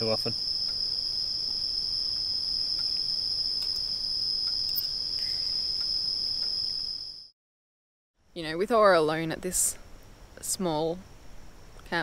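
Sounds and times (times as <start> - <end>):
night insects chirping: 0.0 - 7.3.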